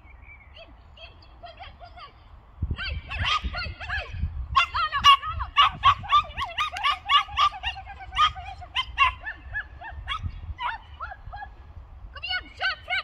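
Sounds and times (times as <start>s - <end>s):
wind rumble on microphone: 0.0s - 13.0s
small dog yipping: 3.1s - 11.5s.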